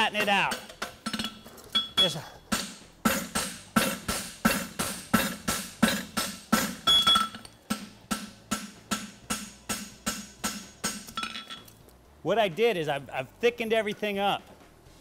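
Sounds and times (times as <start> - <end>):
hammer striking metal on anvil: 0.0 - 11.7.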